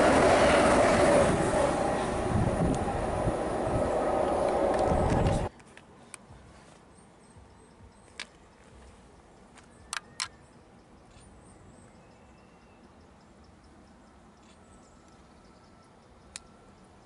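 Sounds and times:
faint high bird chirps: 9.6 - 17.0.

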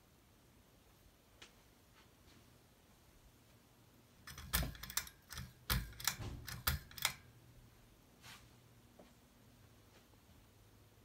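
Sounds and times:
ceiling fan humming: 0.0 - 11.0
sharp clicks and knocks: 4.2 - 7.3.

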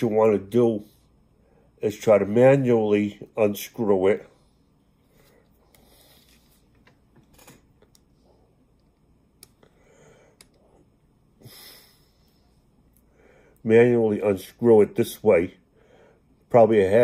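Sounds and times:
person sniffing: 11.4 - 12.5.

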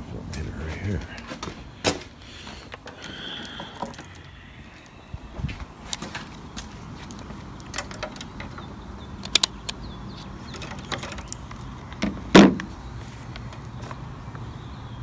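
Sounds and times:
handling clicks: 7.1 - 9.9
thump: 12.0 - 12.7.

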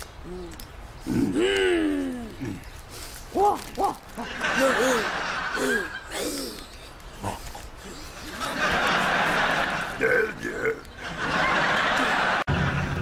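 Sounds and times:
man's raspy cries and yelps: 0.4 - 2.7, 3.3 - 11.1.

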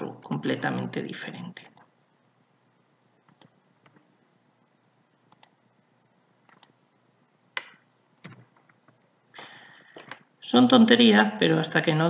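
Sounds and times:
computer mouse clicks: 3.2 - 4.0, 5.3 - 5.6, 6.4 - 6.8, 7.6 - 9.0
keyboard clicks: 3.2 - 4.0, 5.3 - 5.6, 6.4 - 6.8, 7.6 - 8.9.

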